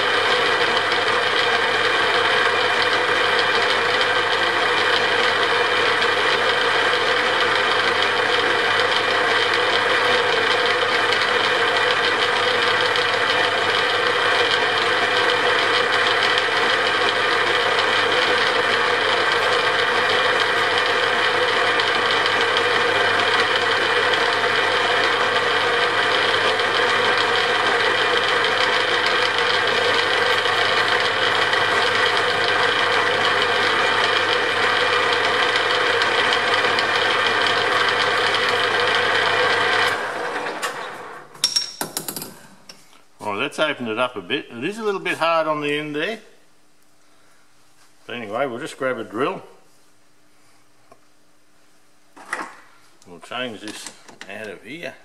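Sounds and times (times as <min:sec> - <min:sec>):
metal lathe gears rattling whir: 0:07.5 - 0:25.4, 0:26.0 - 0:41.0.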